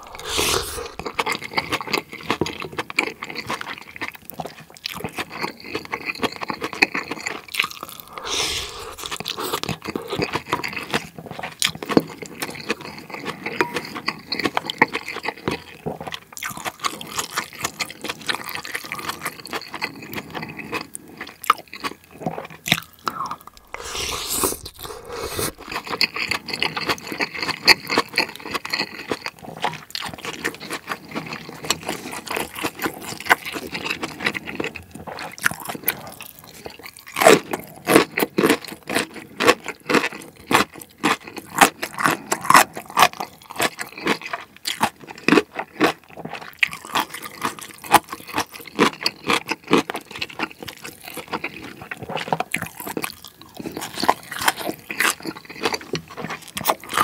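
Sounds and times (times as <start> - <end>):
wet chewing and smacking: 0.0 - 57.0.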